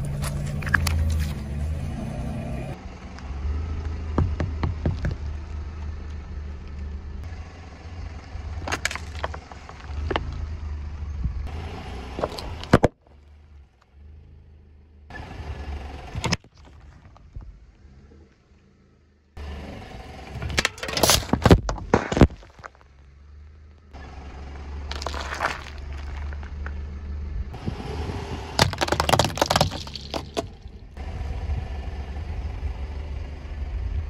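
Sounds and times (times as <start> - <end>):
car engine rumble: 0.0 - 34.0
tyre crushing objects: 20.6 - 22.8, 24.9 - 26.6, 28.6 - 30.7
drink cans splitting and spraying: 28.5 - 30.6
cracks and pops of bursting items: 28.6 - 30.6.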